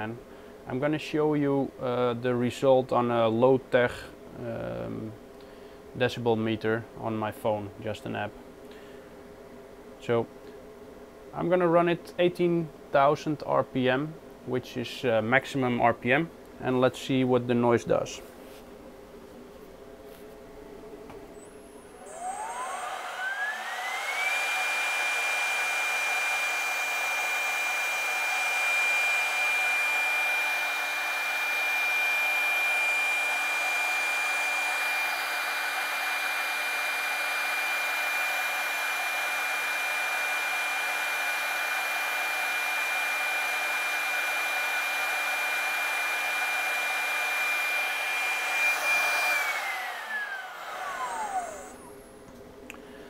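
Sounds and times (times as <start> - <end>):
cooling fan air rush: 0.0 - 53.0
router spindle whine: 21.3 - 52.1.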